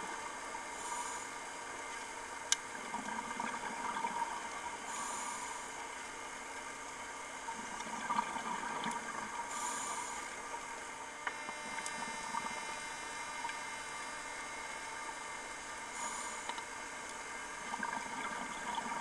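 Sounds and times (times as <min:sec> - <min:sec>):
water hissing against camera: 0:00.7 - 0:01.4, 0:09.0 - 0:10.4, 0:15.9 - 0:16.6
regulator inhalation hiss: 0:00.7 - 0:01.5, 0:04.9 - 0:05.9, 0:09.5 - 0:10.4, 0:15.9 - 0:16.6.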